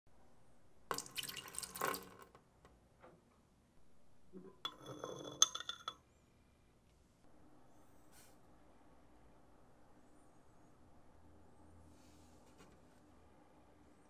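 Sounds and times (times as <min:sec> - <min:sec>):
water splashing into glass container: 0:00.9 - 0:02.2
glass clink: 0:04.4 - 0:06.0.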